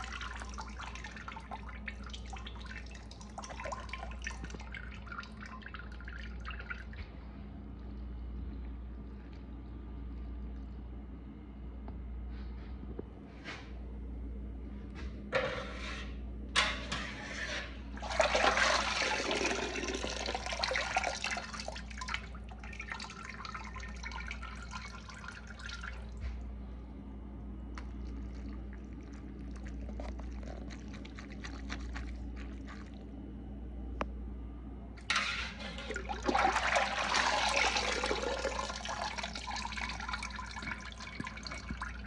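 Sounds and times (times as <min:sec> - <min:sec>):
broth splashing and dripping: 0:00.0 - 0:07.1, 0:27.8 - 0:33.1, 0:35.8 - 0:42.0
steady low hum: 0:00.0 - 0:42.0.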